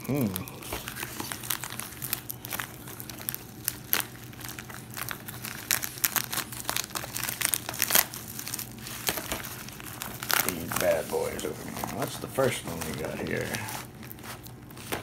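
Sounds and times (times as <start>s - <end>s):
plastic mailer being torn open: 0.0s - 15.0s.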